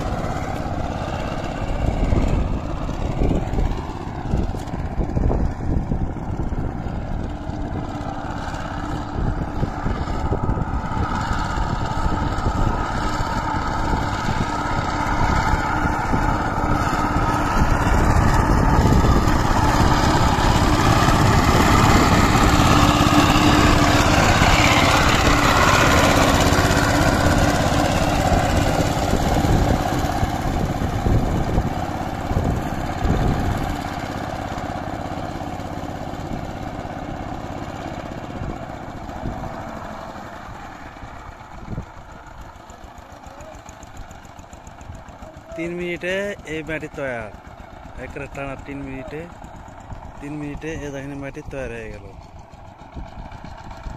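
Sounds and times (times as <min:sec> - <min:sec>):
blades churning mud: 0:00.0 - 0:51.1
power tiller diesel engine: 0:00.0 - 0:53.9.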